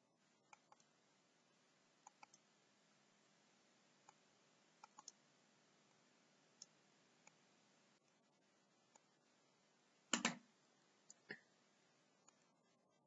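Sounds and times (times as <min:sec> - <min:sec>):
low hiss: 0:00.0 - 0:13.0
mouse button clicks: 0:10.1 - 0:10.4.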